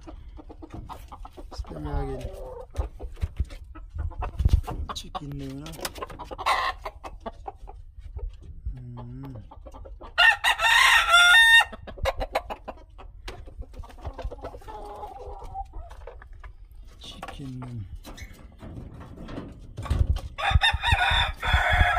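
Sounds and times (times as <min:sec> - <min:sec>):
soft clucking: 0:00.0 - 0:10.2
rooster crowing: 0:10.2 - 0:11.7, 0:20.4 - 0:21.9.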